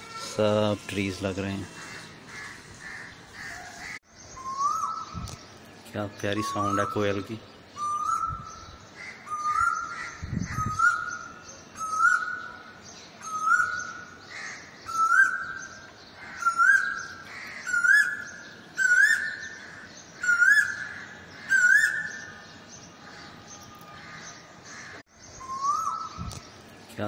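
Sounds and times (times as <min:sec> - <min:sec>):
bird calling whistled notes: 0:04.3 - 0:05.3, 0:06.4 - 0:07.2, 0:07.8 - 0:12.6, 0:13.2 - 0:14.1, 0:14.8 - 0:15.8, 0:16.4 - 0:19.6, 0:20.2 - 0:22.4, 0:25.3 - 0:26.4.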